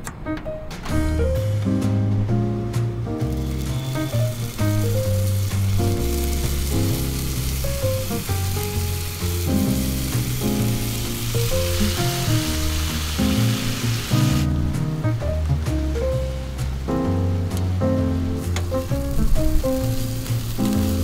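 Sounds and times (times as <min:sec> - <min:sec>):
background music with bass line: 0:00.9 - 0:21.0
food sizzling in a frying pan: 0:03.1 - 0:14.5, 0:18.4 - 0:21.0.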